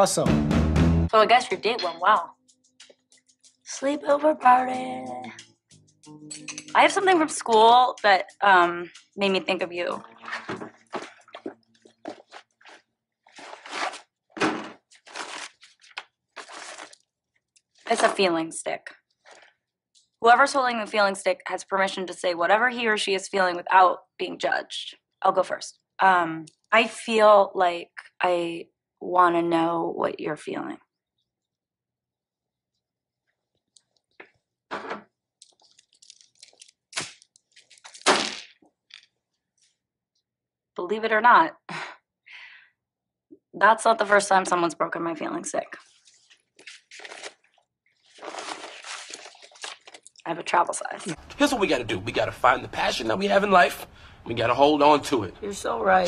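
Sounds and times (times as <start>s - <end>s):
bag rustling: 10.0s - 17.0s, 35.4s - 38.0s, 48.0s - 50.0s
stick snapping: 35.4s - 39.1s.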